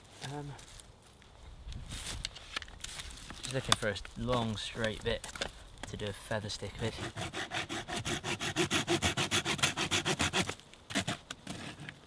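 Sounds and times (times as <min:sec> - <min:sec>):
saw cutting through wooden stick: 0:06.8 - 0:11.9.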